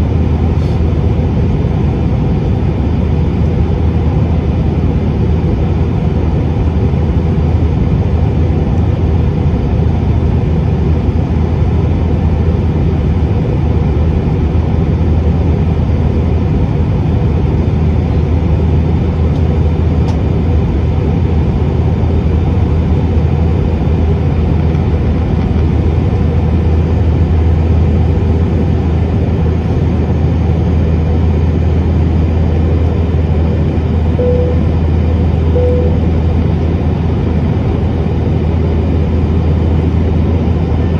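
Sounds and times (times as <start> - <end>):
jet airliner cabin roar: 0.0 - 40.9
short tone: 34.2 - 36.4.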